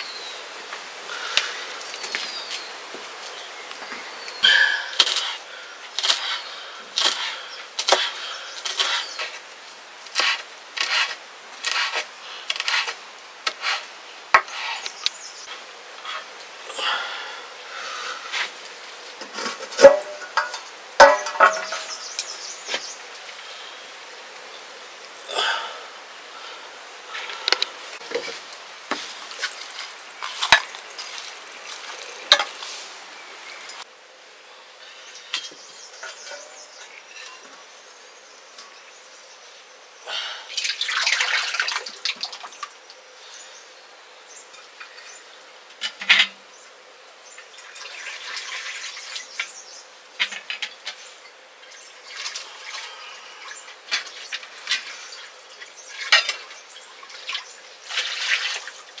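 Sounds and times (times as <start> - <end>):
water splashing and dripping: 40.5 - 43.0, 47.4 - 49.6, 52.0 - 59.0.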